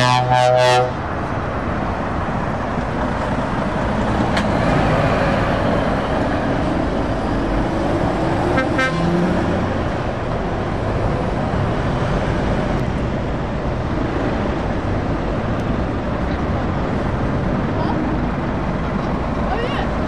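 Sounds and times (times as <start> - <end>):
horn toot: 0.0 - 1.0, 8.5 - 9.2
traffic noise: 0.0 - 20.0
truck diesel engine pulling away: 0.9 - 20.0.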